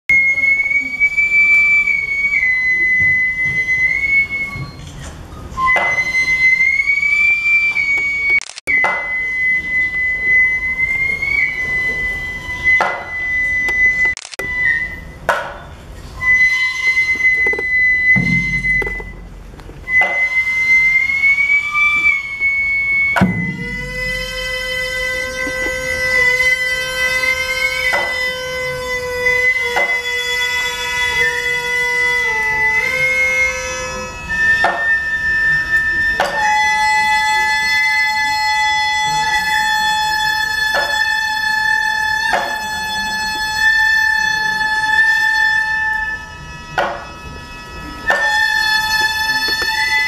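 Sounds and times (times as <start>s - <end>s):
sustained flute line: 0.1s - 50.0s
sharp drum strokes: 15.3s - 20.6s, 23.2s - 28.4s.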